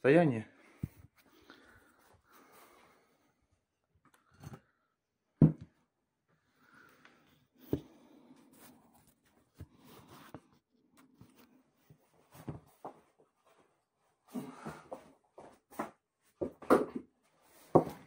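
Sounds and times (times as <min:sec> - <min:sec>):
faint rustling of person moving: 0:00.4 - 0:03.9, 0:05.8 - 0:16.4.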